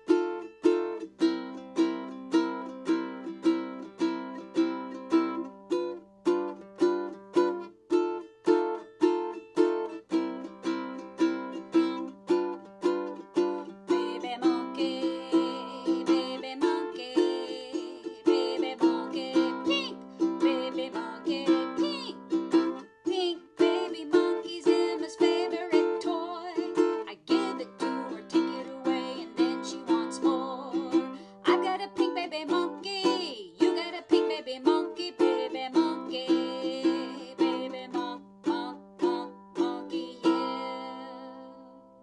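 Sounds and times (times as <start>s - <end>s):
ukulele strumming blues: 0.0s - 42.0s
woman singing: 13.6s - 41.9s.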